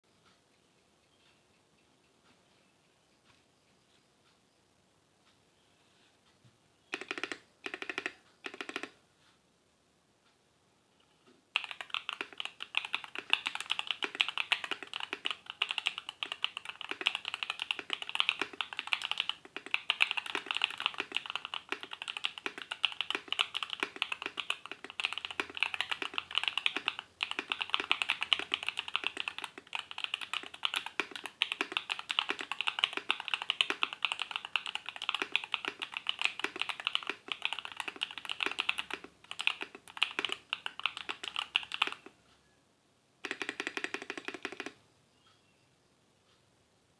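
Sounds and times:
fast mechanical keyboard typing: 7.0s - 9.0s, 11.6s - 42.1s, 43.2s - 44.8s.

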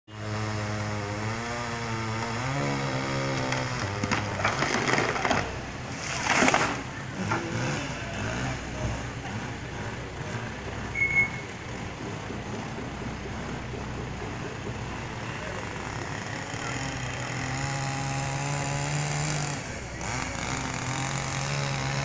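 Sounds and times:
machinery engines running: 0.1s - 22.0s
tree trunk cracking: 2.0s - 7.4s
branches crashing to ground: 2.2s - 6.9s.

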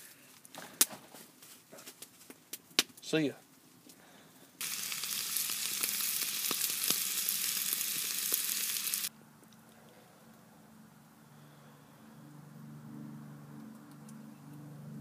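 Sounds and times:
meat patty sizzling in a skillet: 4.6s - 9.1s.

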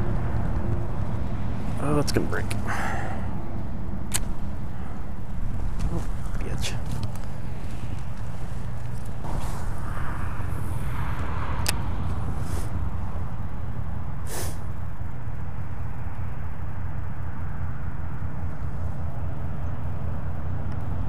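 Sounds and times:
wind buffeting microphone: 2.4s - 14.2s
sharp click: 4.1s - 4.4s
fishing line hiss: 12.3s - 12.8s, 14.2s - 14.8s.

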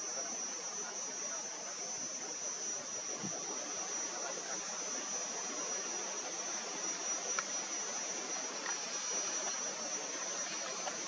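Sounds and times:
background hiss: 0.0s - 11.0s
high-pitched whine: 0.0s - 11.0s
faint ticks: 7.3s - 7.6s, 8.6s - 11.0s.

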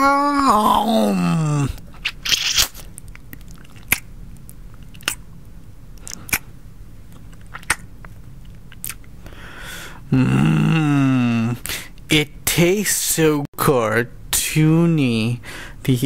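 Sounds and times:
mouth chewing gummy candy: 1.7s - 5.3s, 6.0s - 6.5s, 7.1s - 9.2s.

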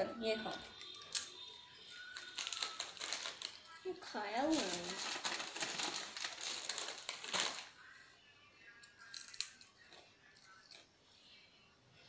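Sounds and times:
child crunching potato chip: 2.2s - 3.8s.

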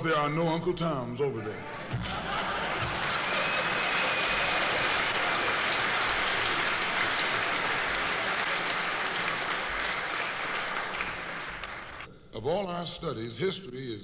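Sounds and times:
crowd applauding: 1.8s - 12.1s.

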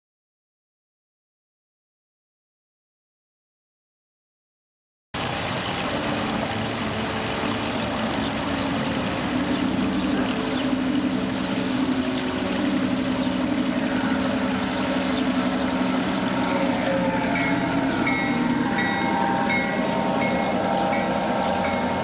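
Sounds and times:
waterfall splashing over rocks: 5.2s - 22.0s
model train motor humming: 8.7s - 22.0s.

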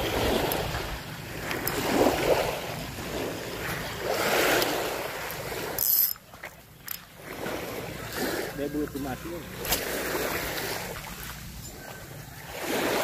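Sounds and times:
wind rumbling on microphone: 0.0s - 5.8s
small waves washing on beach: 0.0s - 13.0s.

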